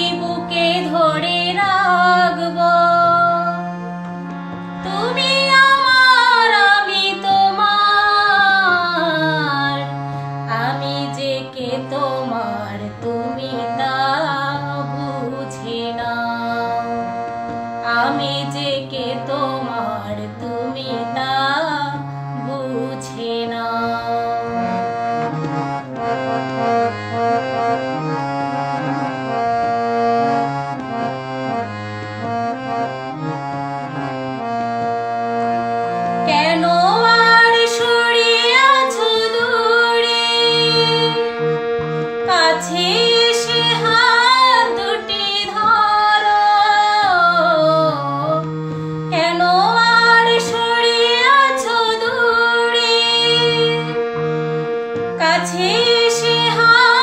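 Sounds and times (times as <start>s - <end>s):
harmonium melody over drone: 0.0s - 57.0s.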